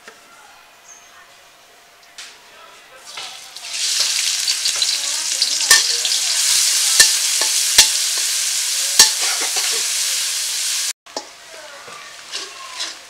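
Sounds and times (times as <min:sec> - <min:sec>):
onions sizzling in hot oil: 0:03.1 - 0:13.0
metal spatula striking pan: 0:04.8 - 0:06.0, 0:09.0 - 0:09.7.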